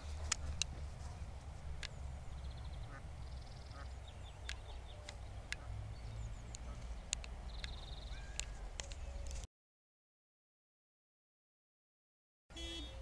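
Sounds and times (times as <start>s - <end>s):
bird trills: 2.4s - 9.4s
high bird chirps: 6.0s - 9.4s.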